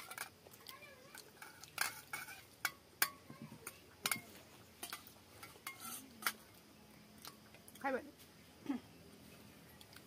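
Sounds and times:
fingers clinking on steel bowls: 0:00.0 - 0:06.4.

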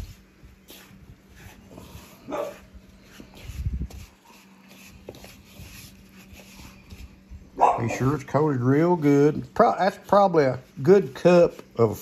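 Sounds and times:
dog barking: 0:02.3 - 0:02.6, 0:07.6 - 0:08.0.

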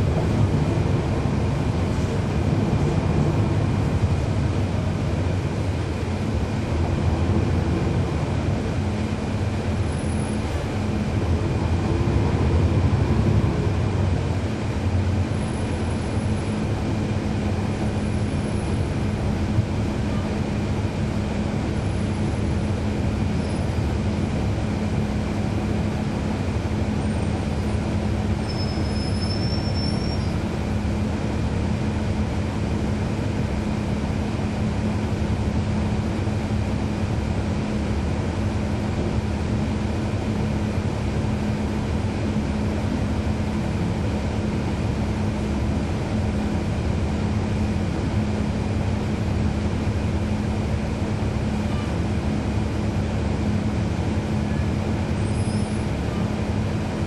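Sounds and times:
bus diesel engine drone: 0:00.0 - 0:57.0
vehicle rumble: 0:00.0 - 0:57.0
faint high squeal: 0:28.4 - 0:30.4, 0:55.2 - 0:55.9.

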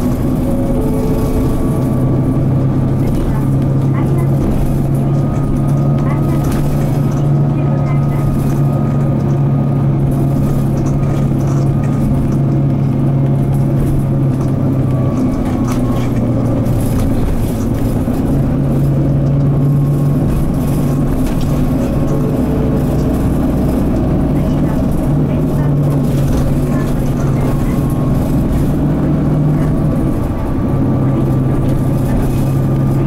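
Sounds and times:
bus diesel engine pulling: 0:00.0 - 0:33.0.

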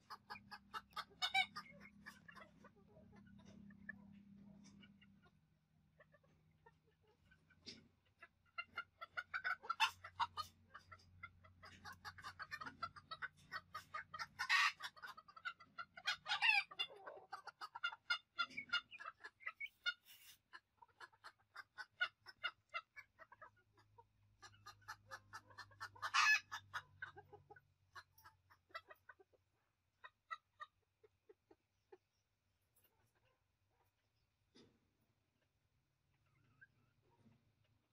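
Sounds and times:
loud chicken calls: 0:00.0 - 0:02.6, 0:08.5 - 0:23.4, 0:24.4 - 0:29.0
chickens clucking: 0:00.0 - 0:37.9.

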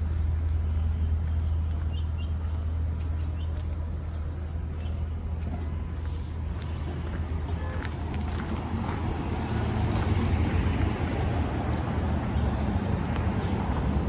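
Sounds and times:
city street traffic rumble: 0:00.0 - 0:14.0.

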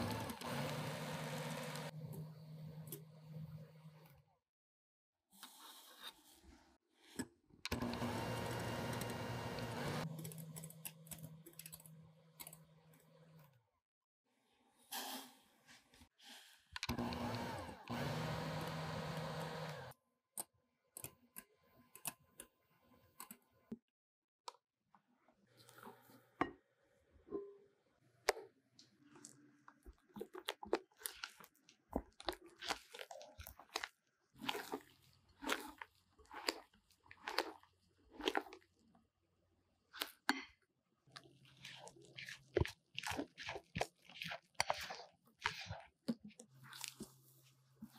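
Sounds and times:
electric hand mixer whipping: 0:00.0 - 0:01.9, 0:07.7 - 0:10.1, 0:16.9 - 0:19.9
spatula squelching batter: 0:29.3 - 0:38.8, 0:41.0 - 0:47.9.

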